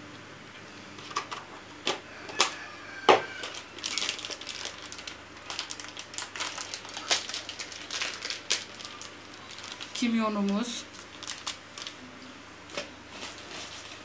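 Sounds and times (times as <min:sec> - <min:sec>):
plastic crackling clicks: 0:03.4 - 0:12.0.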